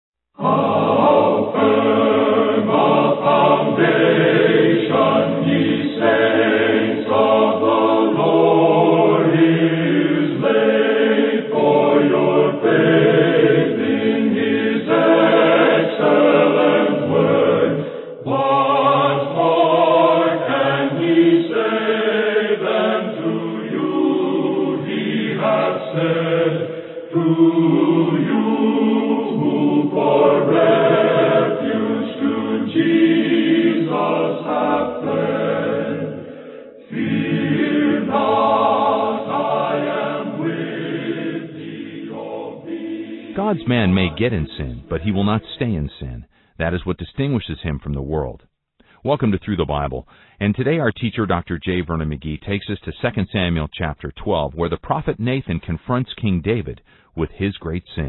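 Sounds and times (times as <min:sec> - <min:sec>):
choir singing held chords: 0:00.4 - 0:46.3.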